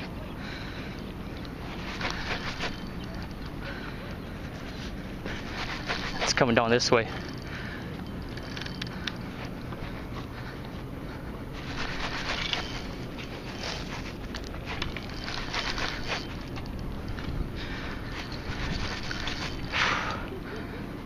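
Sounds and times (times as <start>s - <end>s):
steady background rush: 0.0s - 21.0s
fishing reel clicking and rattling: 1.4s - 3.8s, 5.4s - 9.2s, 11.6s - 20.2s.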